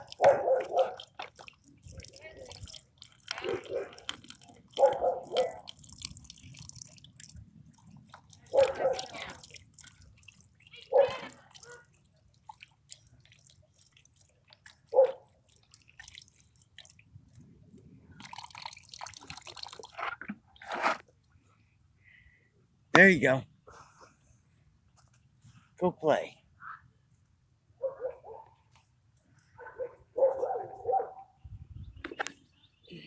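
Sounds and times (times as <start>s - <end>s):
water splashing into bowl: 0.0s - 17.0s, 18.2s - 19.9s.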